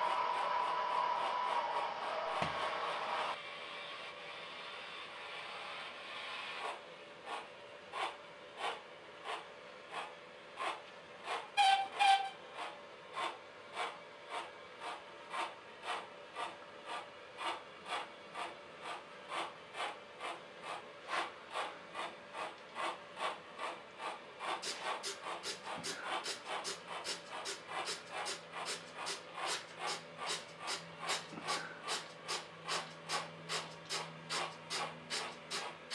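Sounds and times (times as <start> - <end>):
model steam locomotive chuffs: 0.0 - 35.9
hiss: 3.1 - 7.4, 24.0 - 35.9
train whistle toots: 11.6 - 12.4.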